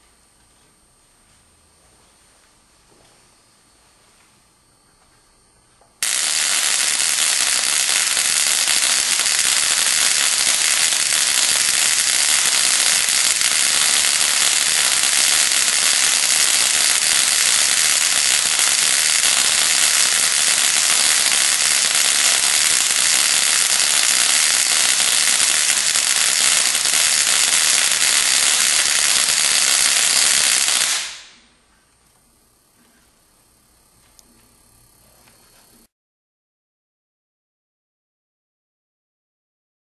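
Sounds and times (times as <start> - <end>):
induction coil sparks hissing: 6.0 - 31.5.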